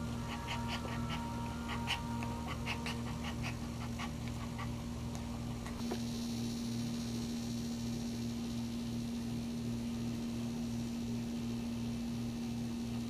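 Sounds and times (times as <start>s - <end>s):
steady low hum: 0.0s - 13.0s
small dog panting: 0.2s - 4.9s.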